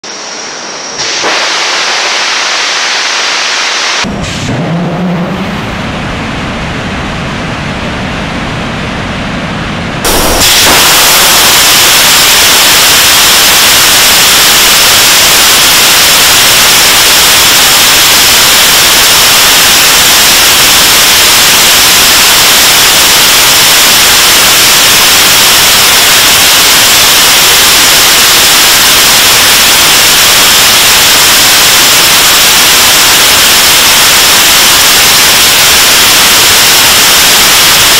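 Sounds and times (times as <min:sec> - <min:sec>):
rocket engine hiss: 0:00.0 - 0:04.5, 0:10.0 - 0:37.9
rocket engines roaring: 0:00.0 - 0:27.6
rumble with wavering tone: 0:04.0 - 0:10.1.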